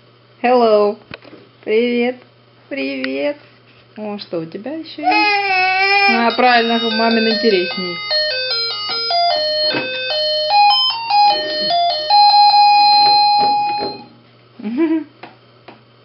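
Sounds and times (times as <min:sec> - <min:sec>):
baby vocal sound: 0:05.0 - 0:06.3
toy phone beeping tune: 0:06.1 - 0:14.1.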